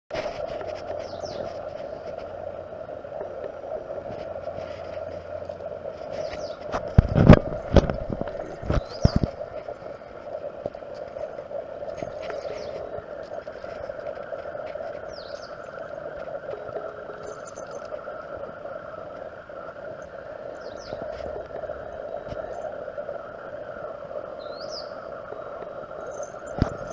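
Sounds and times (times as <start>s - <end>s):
steady hum: 0.1s - 26.9s
small birds chirping: 1.0s - 1.6s, 6.1s - 6.7s, 8.7s - 9.4s, 12.1s - 12.9s, 15.0s - 15.9s, 17.2s - 17.9s, 20.5s - 21.1s, 24.3s - 26.9s.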